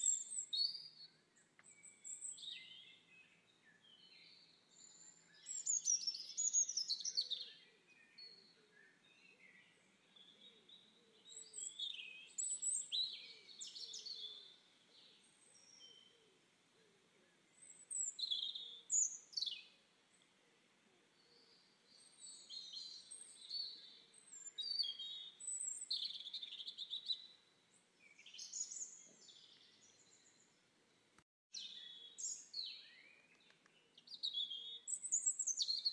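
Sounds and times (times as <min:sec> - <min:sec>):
small birds chirping: 0:00.0 - 0:35.9.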